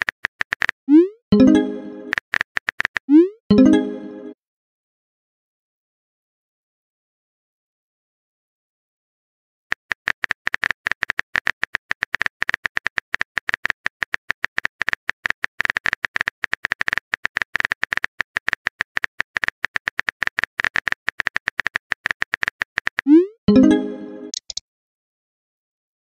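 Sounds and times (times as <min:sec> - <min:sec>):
keyboard typing clicks: 0:01.4 - 0:03.2, 0:09.7 - 0:24.6.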